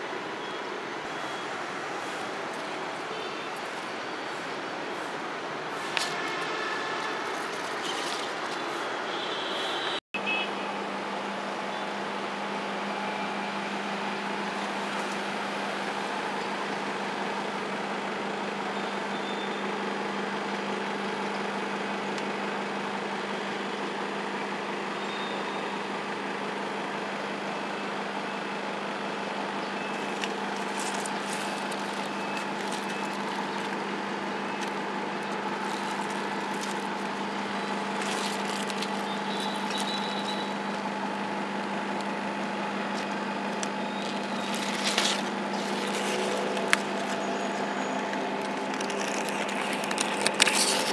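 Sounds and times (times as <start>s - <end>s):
steady mechanical hum: 0.0s - 50.9s
plant leaves rustling: 1.9s - 8.9s, 29.9s - 41.1s, 41.9s - 50.9s.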